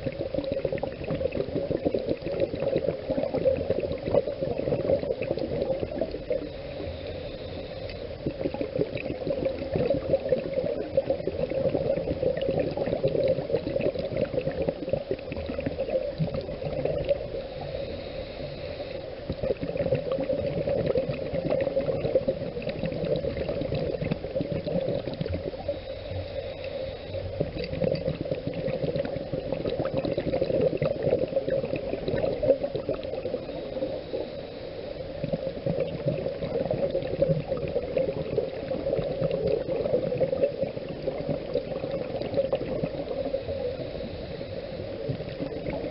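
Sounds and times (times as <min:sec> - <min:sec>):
air bubbles gurgling underwater: 0:00.0 - 0:18.1, 0:19.2 - 0:26.0, 0:27.2 - 0:34.4, 0:35.0 - 0:45.9.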